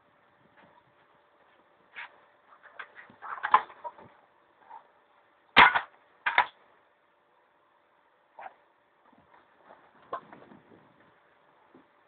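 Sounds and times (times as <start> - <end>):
handling noises: 0.4 - 5.0.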